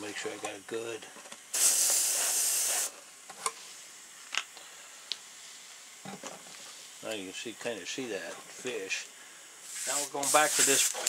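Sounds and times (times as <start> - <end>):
airbrush hiss of air: 1.5 - 3.0, 9.6 - 11.0.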